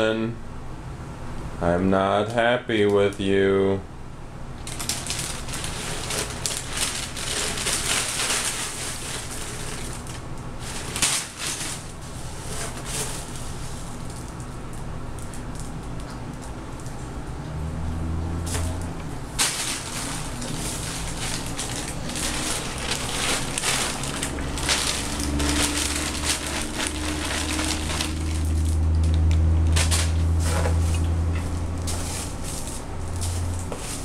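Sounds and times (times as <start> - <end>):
dry cereal crunching and rattling: 4.6 - 14.6, 18.0 - 34.0
plastic bag crinkling: 4.6 - 14.6, 18.5 - 34.0.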